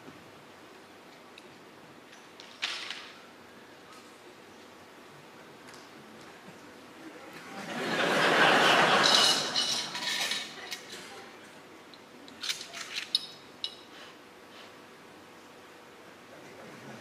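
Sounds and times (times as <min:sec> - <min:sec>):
audience laughing: 0:07.5 - 0:09.6
clinks against glass: 0:09.0 - 0:11.0, 0:12.4 - 0:13.9.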